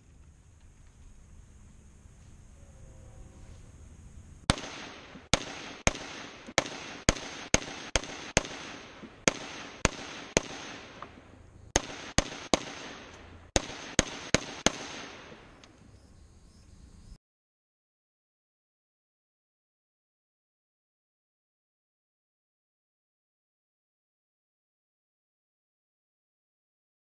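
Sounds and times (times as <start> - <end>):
rifle gunshots: 4.5 - 15.6.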